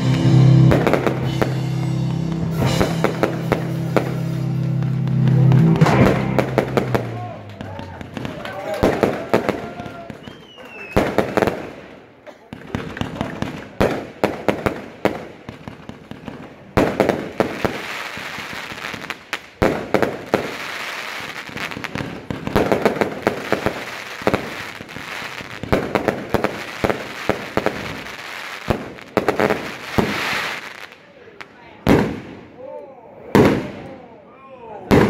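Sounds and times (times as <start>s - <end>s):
fireworks bangs and pops: 0.0s - 32.5s, 33.3s - 33.9s.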